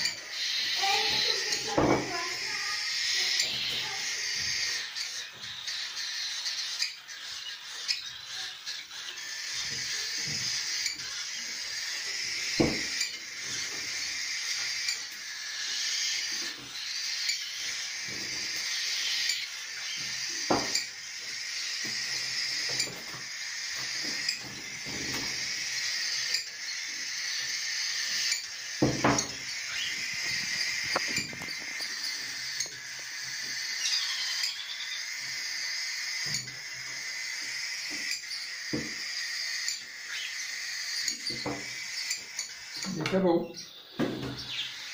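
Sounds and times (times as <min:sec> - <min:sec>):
chicks chirping: 0:00.0 - 0:44.9.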